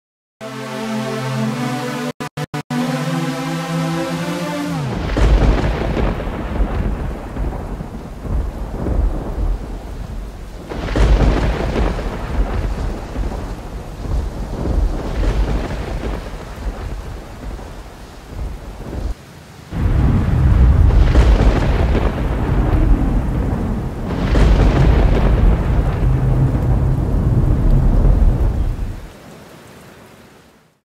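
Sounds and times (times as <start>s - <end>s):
steady rain: 2.8s - 30.8s
thunder rumbling: 4.8s - 29.1s.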